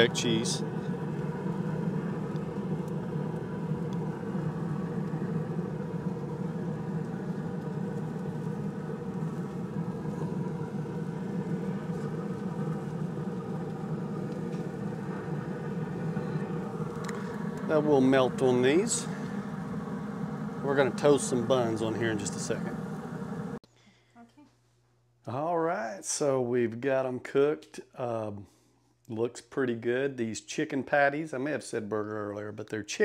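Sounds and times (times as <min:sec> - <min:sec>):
grill fire rumbling: 0:00.0 - 0:23.6.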